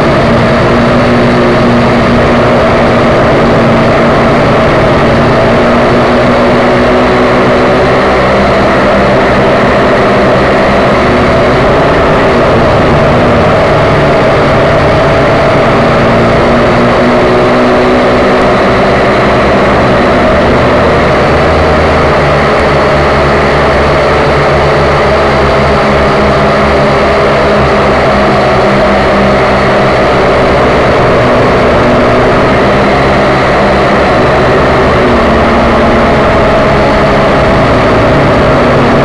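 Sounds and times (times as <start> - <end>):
quadcopter propellers whirring: 0.0 - 39.0.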